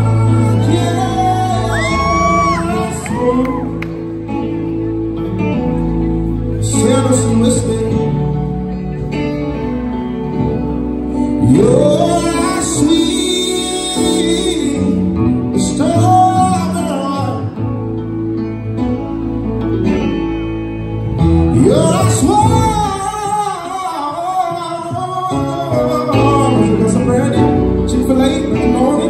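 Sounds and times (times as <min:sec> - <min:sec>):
man singing into a microphone: 0:00.0 - 0:04.7, 0:06.5 - 0:09.1, 0:11.1 - 0:17.8, 0:21.4 - 0:29.0
electric keyboard: 0:00.0 - 0:29.0
guitar: 0:00.0 - 0:29.0.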